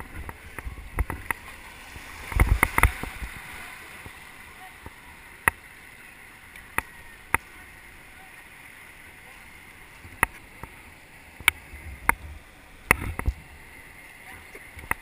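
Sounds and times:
river water rushing: 0:00.0 - 0:15.0
paddle knocks and splashes: 0:00.1 - 0:04.2.

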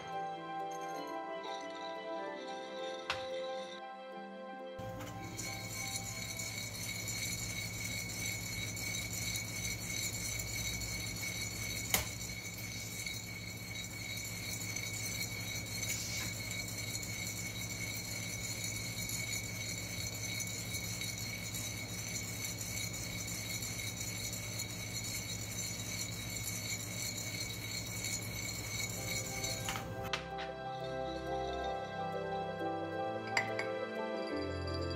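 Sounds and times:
coffee beans rattling in roaster: 0:04.8 - 0:30.1.

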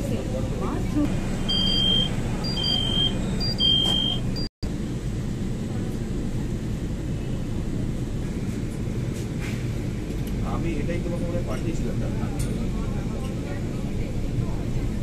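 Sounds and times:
metro carriage hum: 0:00.0 - 0:15.0
short high electronic beeps: 0:01.5 - 0:04.5.

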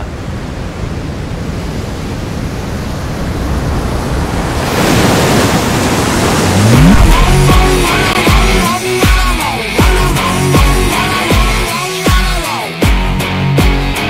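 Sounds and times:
rushing surf-like noise: 0:00.0 - 0:09.8
short rising sweep: 0:06.2 - 0:08.7.

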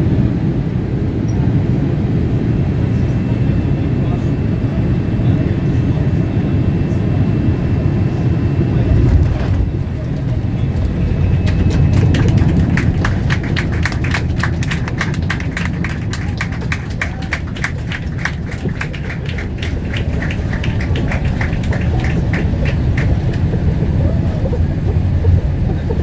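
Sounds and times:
airliner cabin rumble: 0:00.0 - 0:26.0.

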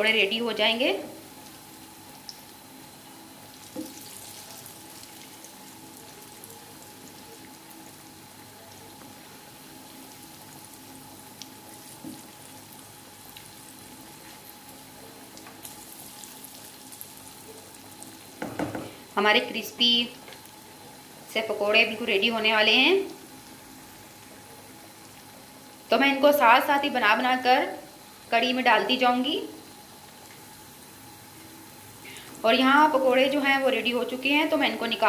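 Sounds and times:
food deep-frying in hot oil: 0:00.0 - 0:35.0
spatula knocking in pan: 0:18.4 - 0:19.0.

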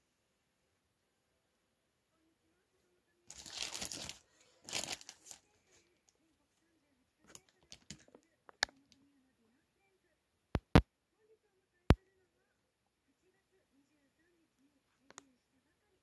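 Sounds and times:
packaging crinkling: 0:03.3 - 0:05.5
sharp clicks: 0:10.6 - 0:10.9.

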